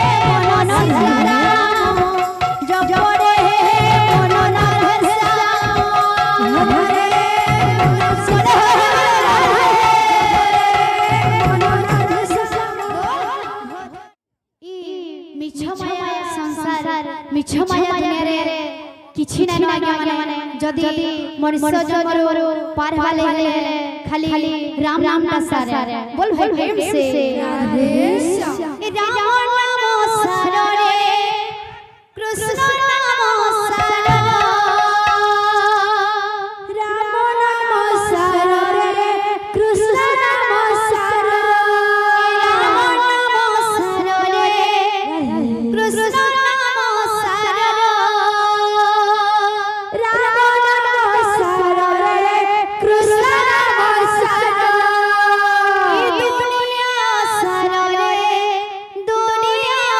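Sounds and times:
barrel drum: 0.0 - 14.1, 33.8 - 35.9
woman singing with vibrato: 0.0 - 14.1, 26.4 - 31.6, 32.2 - 59.9.

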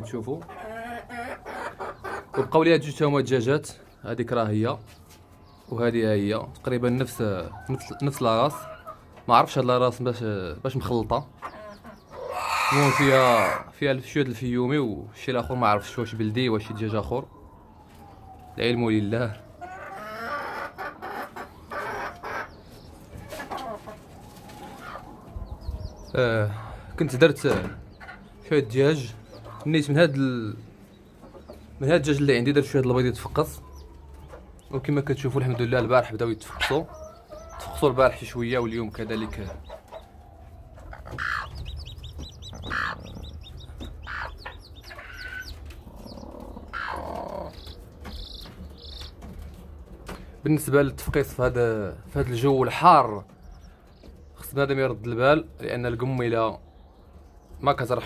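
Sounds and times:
hens clucking: 0.0 - 17.2, 18.9 - 56.5
chicks peeping: 0.0 - 58.0
louder chick calls: 0.4 - 2.6, 11.4 - 13.8, 19.6 - 26.9, 35.4 - 49.3.

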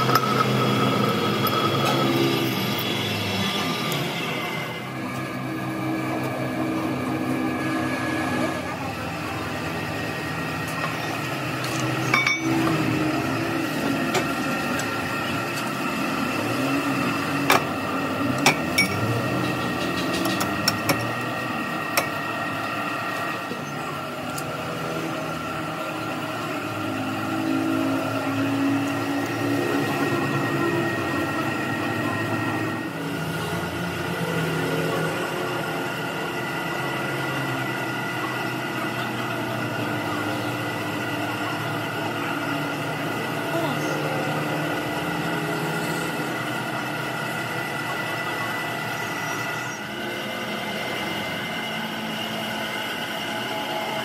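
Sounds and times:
workshop machine hum: 0.0 - 54.0
metal tools clinking on steel: 11.8 - 12.7.

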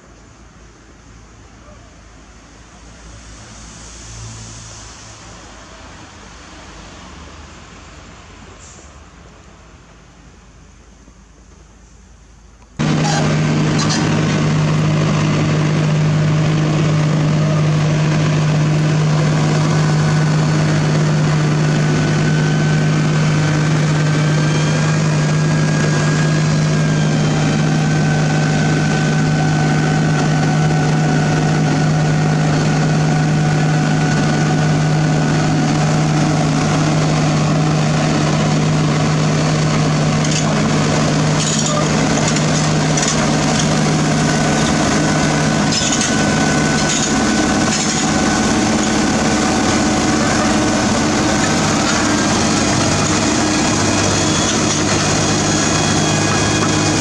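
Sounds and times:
faint whine: 10.6 - 57.0
diesel engine running: 12.7 - 57.0.

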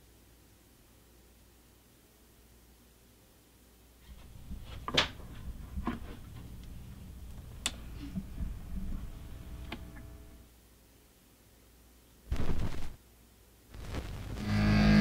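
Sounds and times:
record platter rumble: 4.2 - 10.4, 12.3 - 13.0, 13.7 - 15.0.

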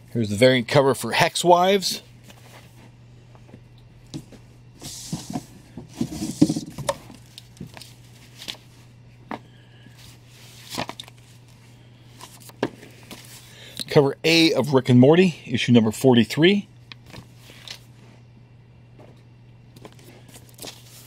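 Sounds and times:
steady low hum: 0.0 - 21.0
paper rustling: 4.8 - 8.8, 10.0 - 11.6, 19.8 - 21.0.

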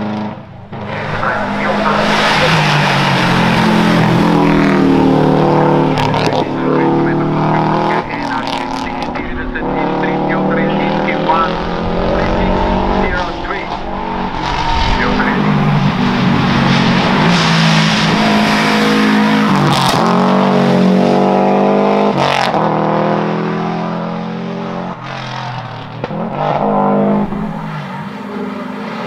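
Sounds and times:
race car engine at full throttle: 0.0 - 29.0.

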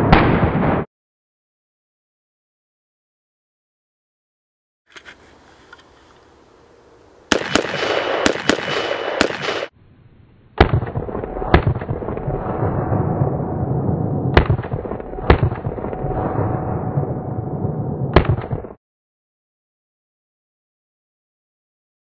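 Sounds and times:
rifle shots: 7.3 - 9.7, 10.6 - 13.0, 14.3 - 16.5, 18.1 - 18.8
ringing tone after shots: 10.8 - 18.7.

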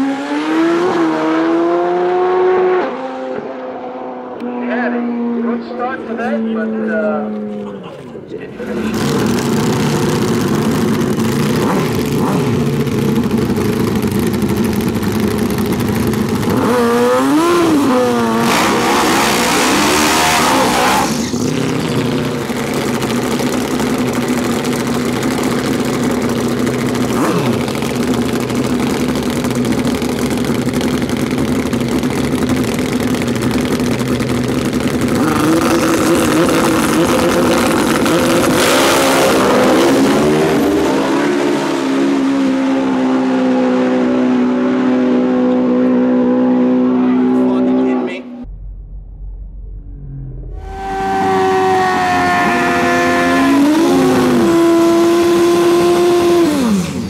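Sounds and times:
motorbike engines idling roughly: 7.6 - 16.6, 21.4 - 38.4.

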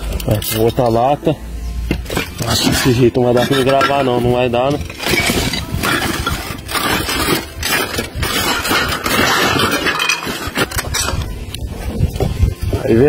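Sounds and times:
broken tiles scraping and knocking: 1.9 - 11.3.

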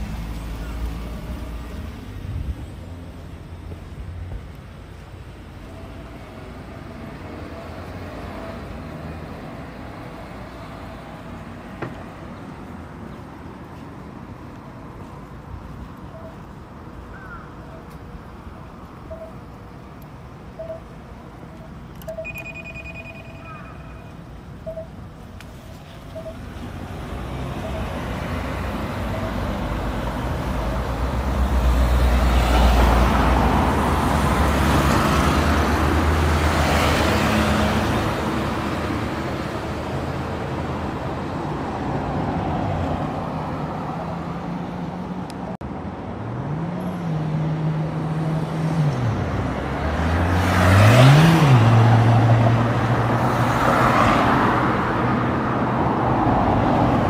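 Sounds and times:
vehicles passing: 0.0 - 57.0
vehicle pulling away: 46.2 - 57.0.

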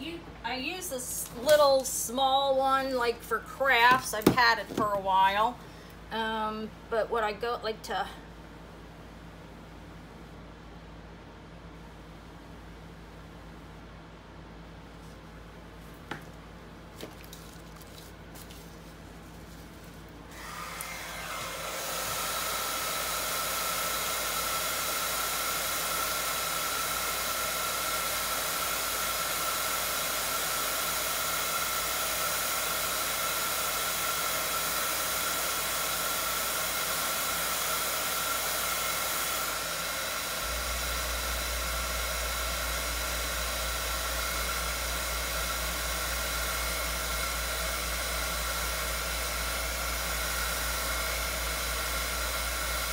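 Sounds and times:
heat gun blowing air: 20.3 - 52.9.

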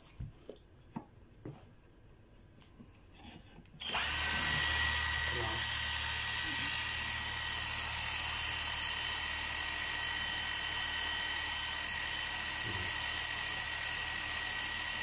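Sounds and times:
cordless drill whining: 3.8 - 15.0.

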